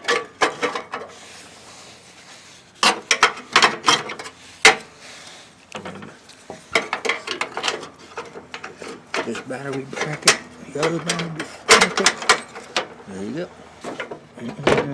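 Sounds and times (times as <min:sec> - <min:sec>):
metal brackets clinking: 0:05.8 - 0:13.1.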